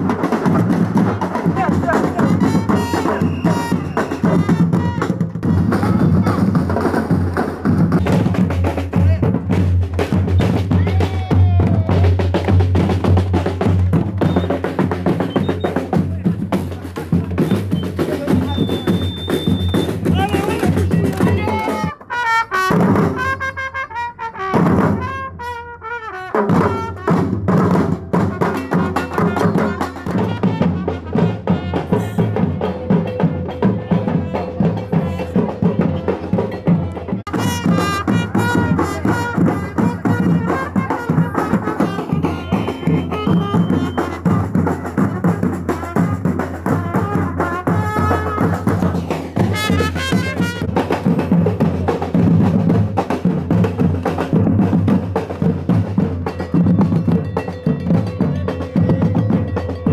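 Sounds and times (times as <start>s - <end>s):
marching drums beating: 0.0s - 59.9s
trumpet: 1.0s - 6.6s, 18.5s - 32.8s, 34.0s - 51.2s.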